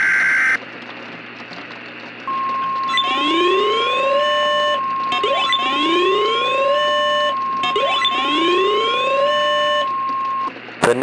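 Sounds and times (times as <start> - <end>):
rising whoop siren: 2.3 - 10.5
steady warning alarm tone: 2.3 - 10.5.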